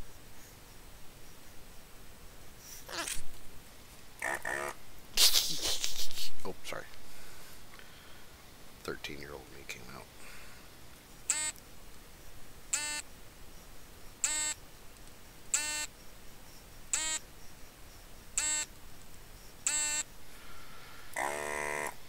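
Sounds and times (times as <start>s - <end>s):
electronic short beeps: 18.4s - 18.7s.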